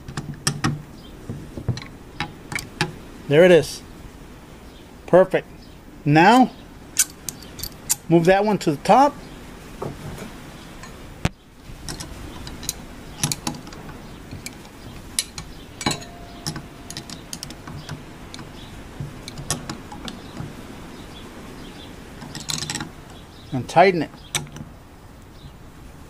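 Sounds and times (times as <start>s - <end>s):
spanner wrench clicking on metal rings: 7.0s - 8.1s, 11.8s - 20.4s, 22.2s - 22.9s.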